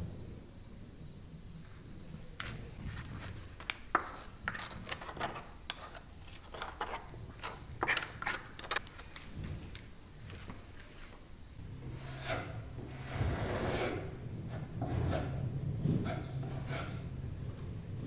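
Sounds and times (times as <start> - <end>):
putty knife scraping metal bowl: 11.9 - 17.1.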